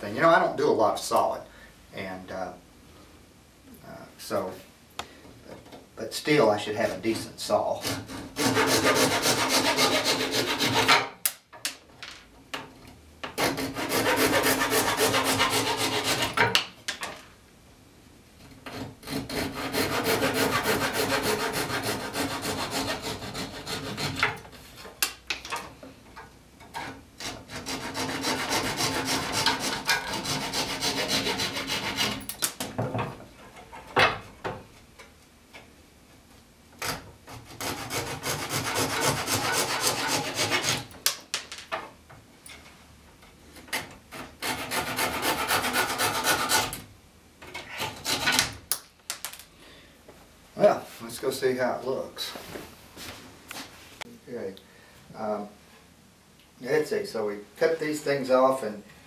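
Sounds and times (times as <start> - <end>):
pull saw cutting wood: 7.8 - 11.1, 13.3 - 16.5, 18.7 - 24.4, 26.8 - 32.3, 36.8 - 40.9, 43.8 - 46.8.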